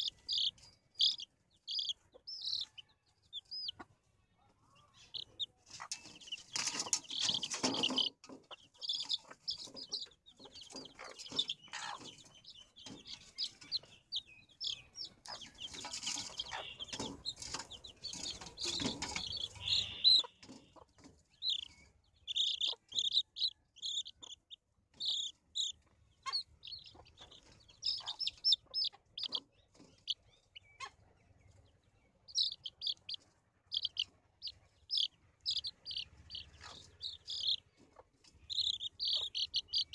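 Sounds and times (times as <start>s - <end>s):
hen clucking: 0.0s - 4.0s, 4.6s - 39.9s
baby chicks peeping: 0.0s - 39.9s
knocks and rustling: 5.7s - 14.0s, 15.3s - 19.7s.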